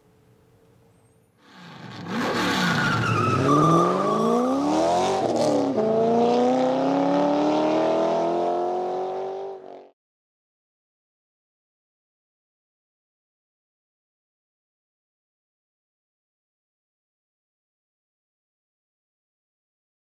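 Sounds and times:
car engine accelerating hard: 1.4s - 9.9s.

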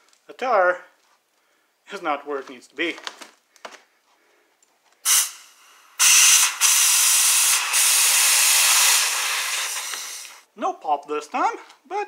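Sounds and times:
compressed air hissing: 5.0s - 10.5s.

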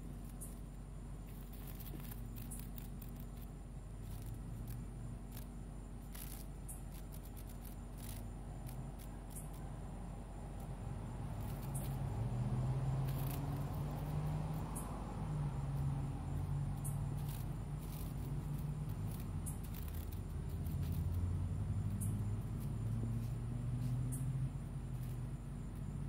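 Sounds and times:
night insects trilling: 0.0s - 26.0s
short scratchy crackles: 1.2s - 9.7s, 16.8s - 21.3s.

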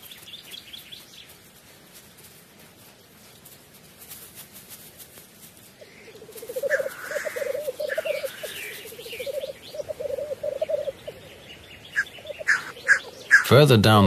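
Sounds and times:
high bird calls: 5.8s - 14.0s
grouse bubbling warble: 5.9s - 11.4s.

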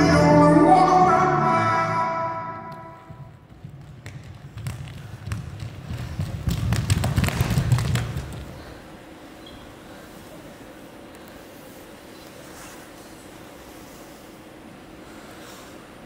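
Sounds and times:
music: 0.0s - 3.1s
bare feet running on stage: 3.0s - 8.8s.

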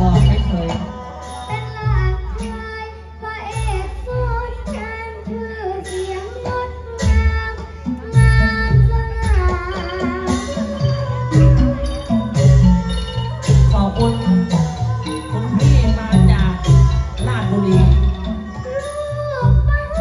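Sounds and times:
deep drum beats: 0.0s - 1.0s, 6.5s - 18.8s
traditional stage music: 0.0s - 20.0s.

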